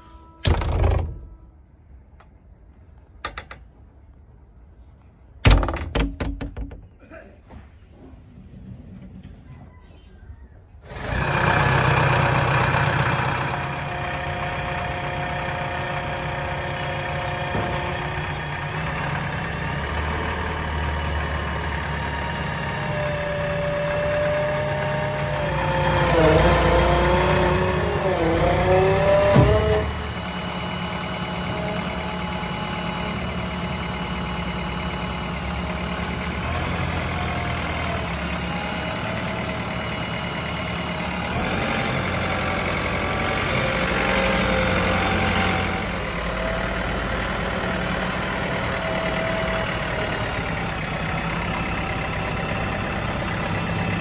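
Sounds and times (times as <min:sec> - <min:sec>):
diesel engine starting and idling: 0:07.9 - 0:54.0.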